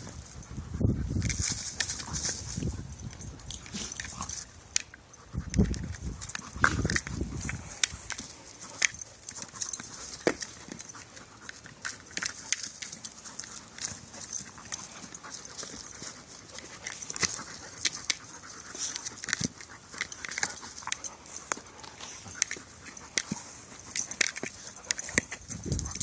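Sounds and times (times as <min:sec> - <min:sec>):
rustling of dry leaves: 0:00.0 - 0:26.0
ball knocking and scuffing: 0:10.1 - 0:10.8.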